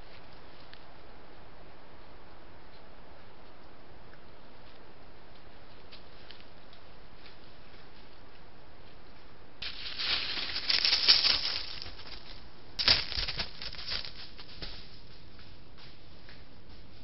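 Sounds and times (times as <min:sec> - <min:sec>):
leaf litter rustling and crackling: 0:09.6 - 0:15.0.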